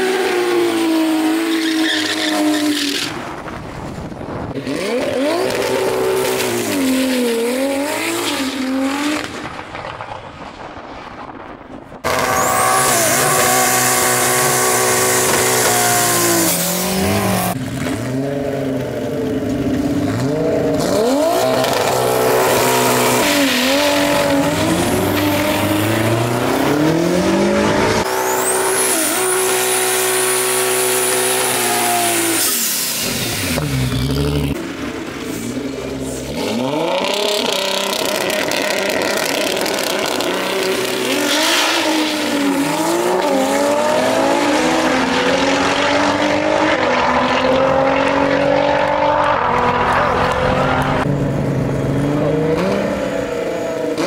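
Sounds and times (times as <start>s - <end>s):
car engine revving: 12.0s - 35.0s, 35.7s - 54.0s.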